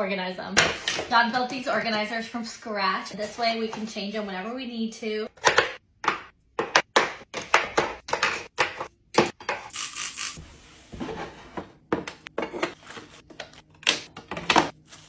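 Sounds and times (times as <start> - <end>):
kitchen utensils clattering: 11.0 - 13.2.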